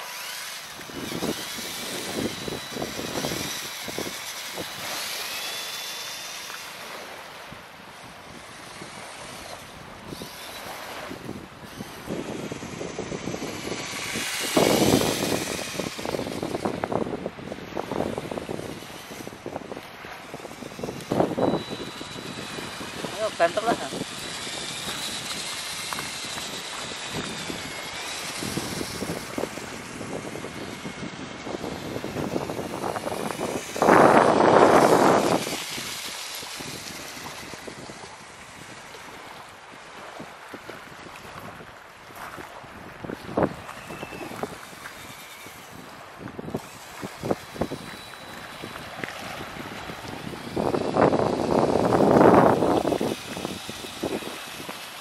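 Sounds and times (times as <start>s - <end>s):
toy car motor whirring: 0.0s - 40.4s, 42.1s - 55.0s
wind noise on microphone: 0.0s - 55.0s
tyres crunching through sand: 10.2s - 38.3s.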